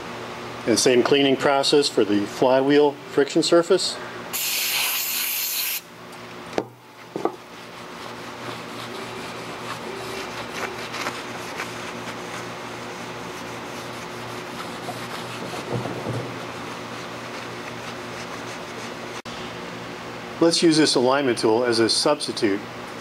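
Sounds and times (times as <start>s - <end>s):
steady low hum: 5.8s - 23.0s
towel rubbing on metal: 7.4s - 19.2s.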